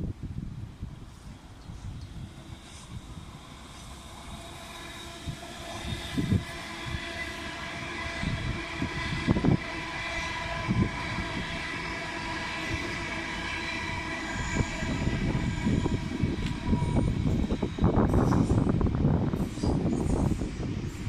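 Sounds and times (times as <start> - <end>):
train wheels rumbling on rails: 0.0 - 21.0
wind buffeting microphone: 0.0 - 21.0
electric train whine: 0.2 - 21.0.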